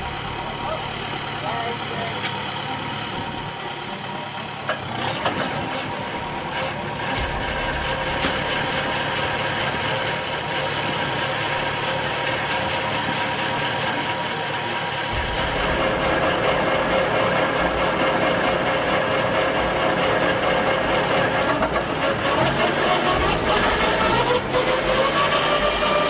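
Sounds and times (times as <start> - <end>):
machine engine idling: 0.0 - 26.0
sharp click: 8.2 - 8.5.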